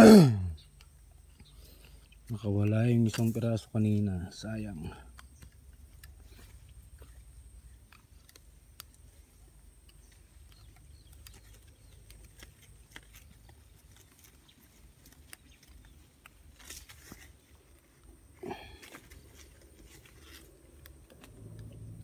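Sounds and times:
low steady rumble: 0:19.0 - 0:22.0.

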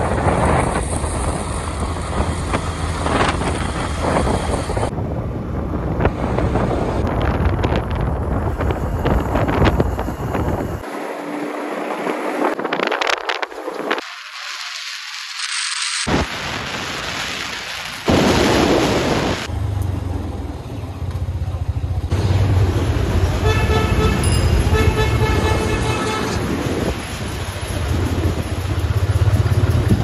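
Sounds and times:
wind rushing over microphone: 0:00.0 - 0:14.4, 0:16.0 - 0:19.5, 0:24.9 - 0:30.0
motorcycle engine running: 0:19.5 - 0:30.0
vehicle horn honking: 0:23.4 - 0:26.5.

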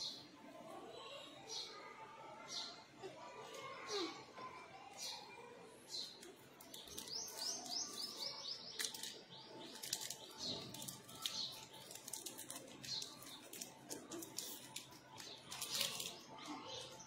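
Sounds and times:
small birds chirping: 0:01.2 - 0:17.0
wrapper crinkling: 0:08.7 - 0:16.5.

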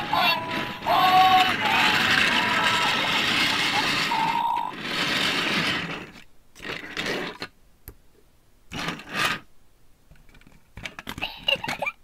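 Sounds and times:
toy figures handling noise: 0:00.0 - 0:07.5, 0:10.1 - 0:12.0
toy train wheels rattling: 0:00.0 - 0:07.5, 0:10.8 - 0:12.0.

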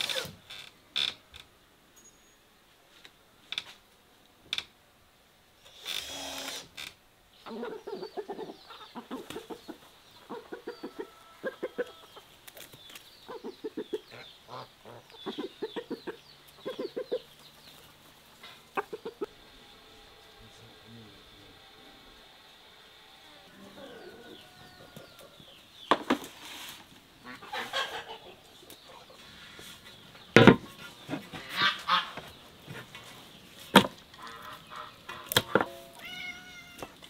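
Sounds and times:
chickens clucking: 0:07.4 - 0:19.5, 0:22.9 - 0:37.0.

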